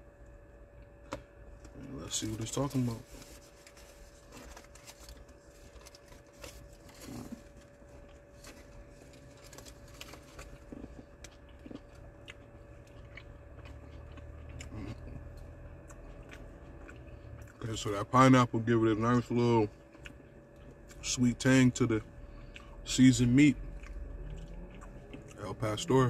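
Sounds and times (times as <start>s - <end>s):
faint steady hum: 0.0s - 26.0s
foil wrapper crinkling: 2.1s - 10.8s
person chewing food: 3.2s - 18.0s, 19.1s - 21.2s, 22.1s - 26.0s.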